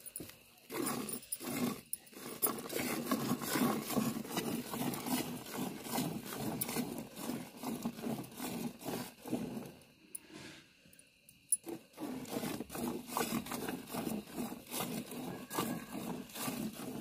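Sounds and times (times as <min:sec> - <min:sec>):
milk squirting into a pail: 0:11.7 - 0:17.0.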